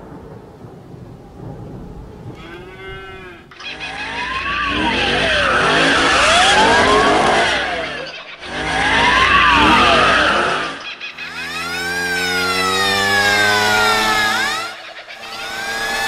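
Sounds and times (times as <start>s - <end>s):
rising and falling tone: 2.3s - 16.0s
tyres skidding and squealing: 2.4s - 16.0s
car engine running: 3.6s - 16.0s.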